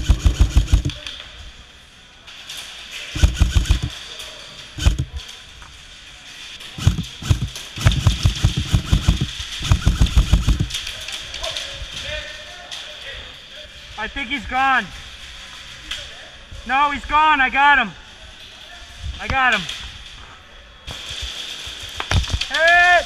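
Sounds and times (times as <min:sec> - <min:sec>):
airsoft rifle bursts: 0:00.0 - 0:01.0, 0:03.1 - 0:04.0, 0:04.8 - 0:05.2, 0:06.6 - 0:11.0.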